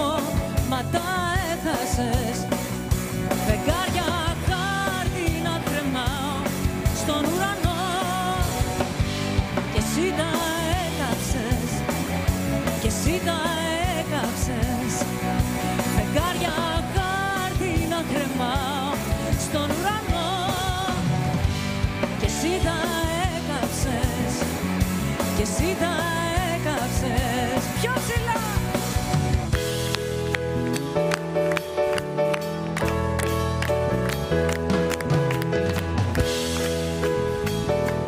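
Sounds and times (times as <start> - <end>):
woman singing into a microphone: 0.0 - 2.7, 3.4 - 8.8, 9.7 - 12.1, 12.8 - 15.2, 15.8 - 21.2, 22.2 - 24.6, 25.2 - 28.6
bass guitar: 0.0 - 38.0
drum kit beat: 0.0 - 38.0
electric guitar: 0.0 - 38.0.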